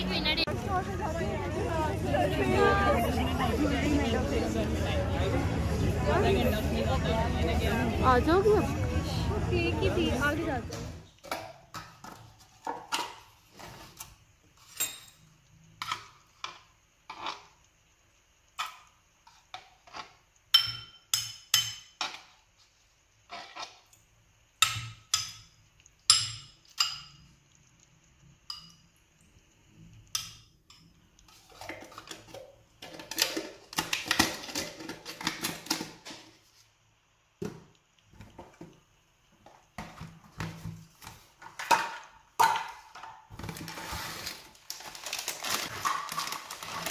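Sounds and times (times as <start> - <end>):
spoon scraping and stirring in bowl: 12.0 - 17.5, 23.2 - 24.0, 30.0 - 36.6
metal spoon clinking on glass bowl: 20.5 - 21.9, 28.5 - 28.9.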